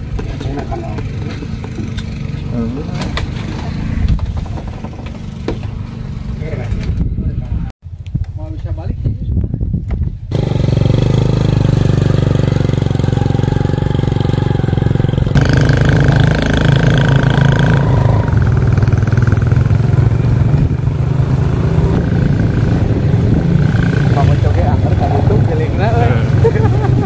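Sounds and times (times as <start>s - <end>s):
motorboat engine droning: 12.2s - 27.0s.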